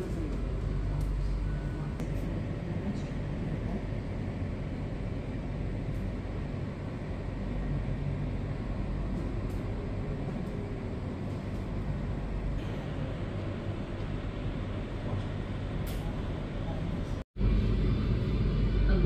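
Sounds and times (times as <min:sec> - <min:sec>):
low rumble with hiss: 0:00.0 - 0:19.0.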